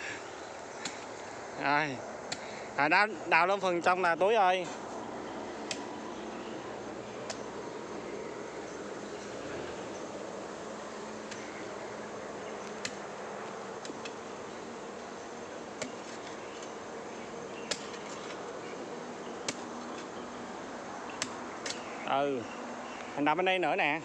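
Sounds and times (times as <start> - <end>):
insects droning: 0.0 - 24.0
hoe chopping into soil: 12.8 - 13.0, 17.6 - 18.4.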